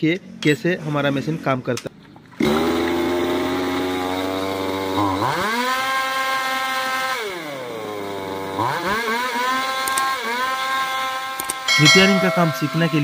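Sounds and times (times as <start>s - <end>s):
chainsaw engine idling and revving: 2.4s - 11.8s.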